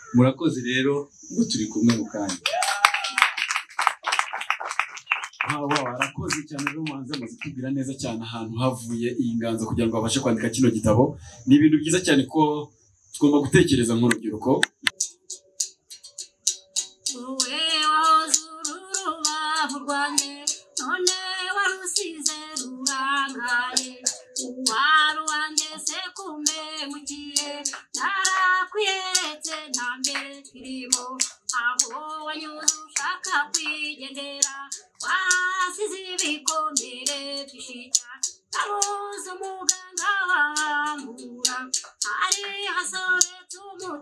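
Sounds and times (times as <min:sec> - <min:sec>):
quick steady tapping beat: 0:03.3 - 0:07.6, 0:13.6 - 0:44.0
woman singing: 0:17.1 - 0:44.0.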